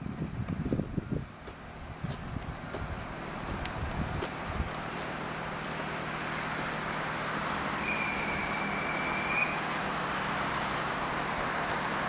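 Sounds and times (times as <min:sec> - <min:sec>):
electric train rumbling: 0:00.0 - 0:12.0
high squeal: 0:07.6 - 0:09.8.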